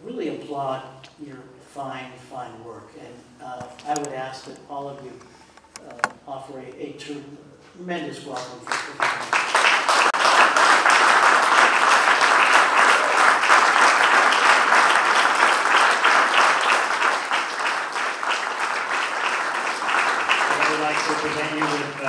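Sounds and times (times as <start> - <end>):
audience applauding: 8.7 - 22.0.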